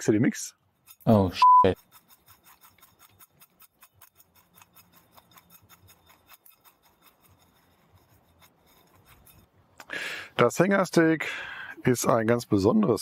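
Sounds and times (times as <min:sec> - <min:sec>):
spice rattling in metal bowl: 0:01.8 - 0:09.5.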